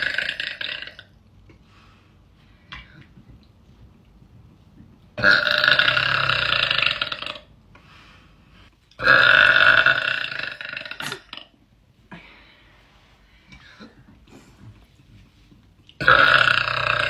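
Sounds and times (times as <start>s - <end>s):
woman burping loudly: 5.2s - 7.5s, 9.0s - 11.6s, 16.0s - 17.0s.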